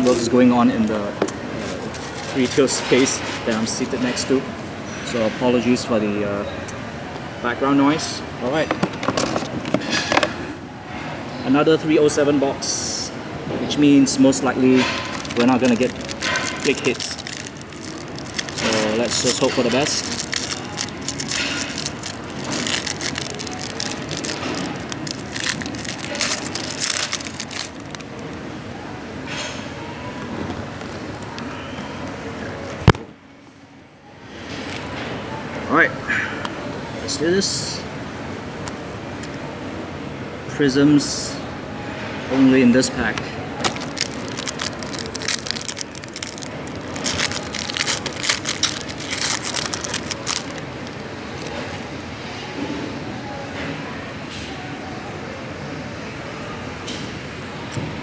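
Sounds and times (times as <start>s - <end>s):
foil wrapper crinkling: 1.7s - 2.8s, 14.8s - 28.4s, 43.6s - 51.6s.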